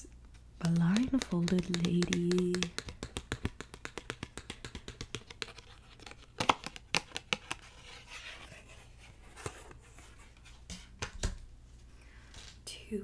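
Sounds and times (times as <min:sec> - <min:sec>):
light tapping on cards: 0:00.6 - 0:07.6.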